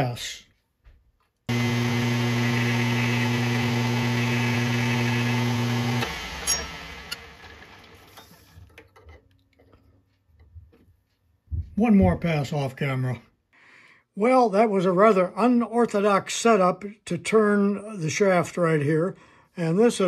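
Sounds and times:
lathe humming and spinning down: 1.5s - 8.4s
lathe click: 5.8s - 8.3s.

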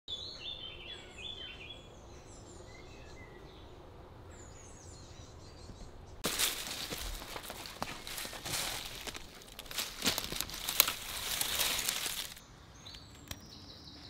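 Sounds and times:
rustling of twigs and leaves: 6.2s - 13.4s.

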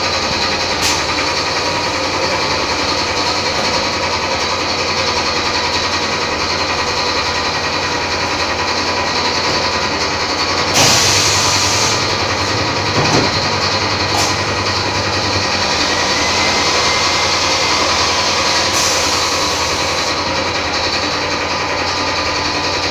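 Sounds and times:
machine mechanical hum: 9.8s - 20.0s.

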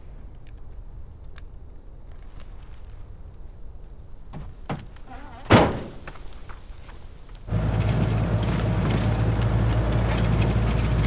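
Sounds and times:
vehicle door slamming: 4.3s - 6.1s.

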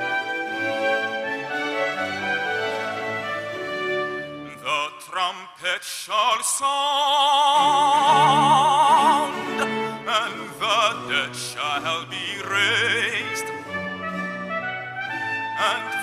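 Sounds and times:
orchestral accompaniment: 0.0s - 4.9s, 7.6s - 16.0s
man singing operatic style: 4.5s - 13.7s, 15.6s - 16.0s.

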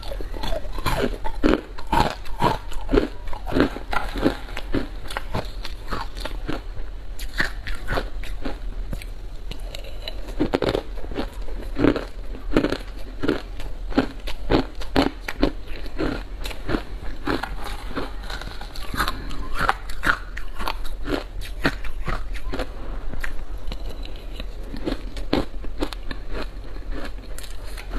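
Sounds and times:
chewing crunchy ice: 0.0s - 27.9s.

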